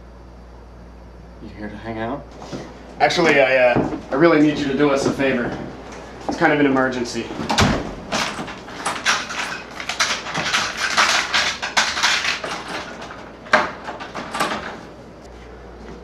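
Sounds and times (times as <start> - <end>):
clattering knocks: 2.3 - 15.0
rustling at a door: 2.3 - 16.0.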